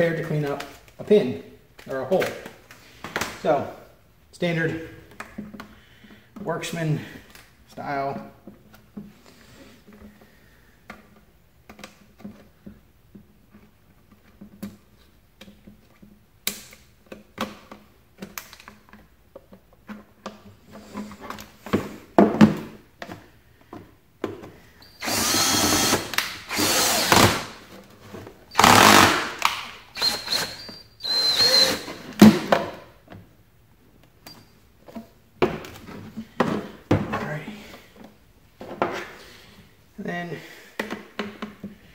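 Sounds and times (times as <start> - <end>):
knocks and handling of box: 17.0 - 24.7, 34.8 - 39.2
drill boring into plastic box: 25.0 - 27.6, 28.5 - 32.0.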